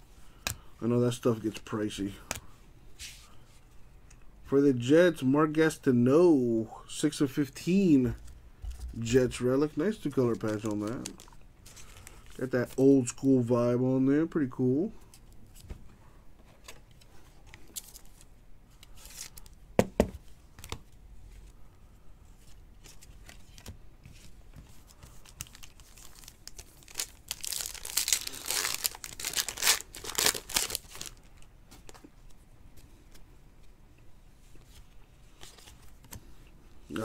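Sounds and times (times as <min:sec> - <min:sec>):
plastic wrapper tearing and crinkling: 0:10.3 - 0:12.4, 0:24.9 - 0:31.5.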